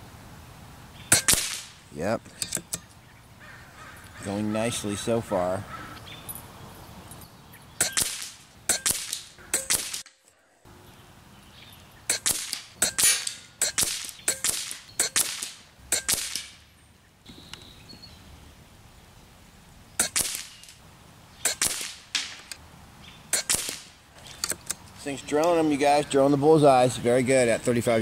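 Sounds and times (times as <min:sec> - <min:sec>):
air rifle shots cracking: 0:01.1 - 0:01.8, 0:07.8 - 0:10.1, 0:12.1 - 0:16.6, 0:20.0 - 0:20.8, 0:21.4 - 0:22.6, 0:23.3 - 0:24.7.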